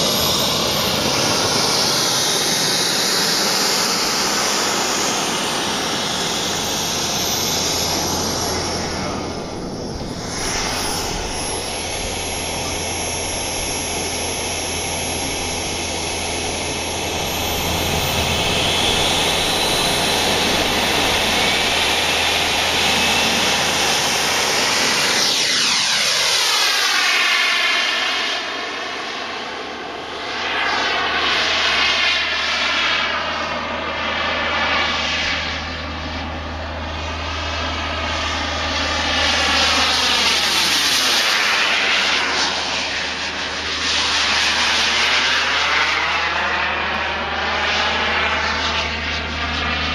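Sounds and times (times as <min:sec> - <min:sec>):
model jet engine whine: 0:00.0 - 0:49.9.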